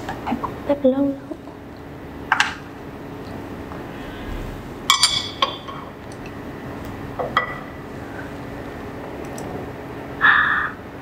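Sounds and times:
faint low hum: 2.8 - 10.6.

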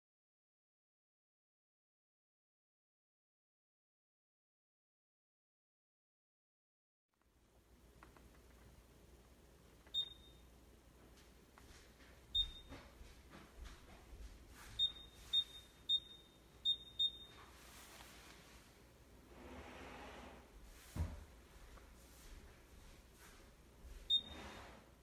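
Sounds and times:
short high-pitched beeps: 10.0 - 10.4, 12.4 - 12.7, 14.8 - 17.4.

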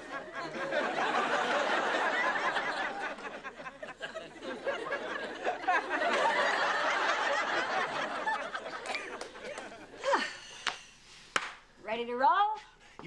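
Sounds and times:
studio audience laughing: 0.0 - 10.3.

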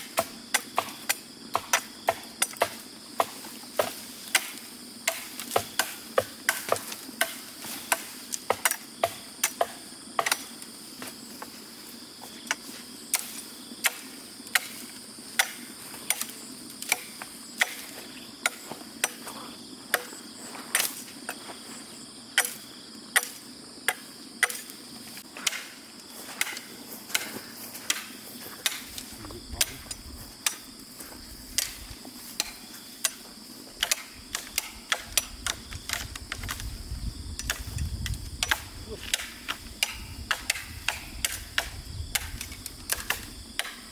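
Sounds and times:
blade chopping bamboo: 0.0 - 10.6, 12.5 - 19.2, 22.4 - 24.7, 25.4 - 25.8, 33.8 - 36.6, 38.4 - 43.9.

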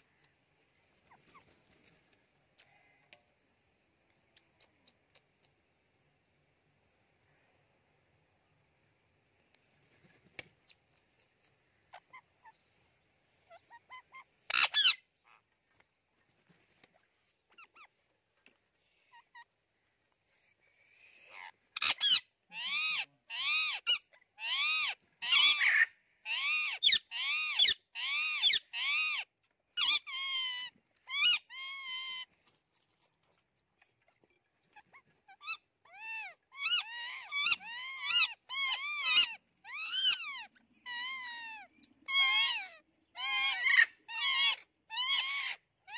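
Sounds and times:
faint clicks: 0.1 - 3.4, 4.0 - 5.9
parakeets squawking harshly: 13.5 - 15.0, 21.2 - 29.2, 29.8 - 32.2, 35.3 - 41.4, 42.1 - 45.6.

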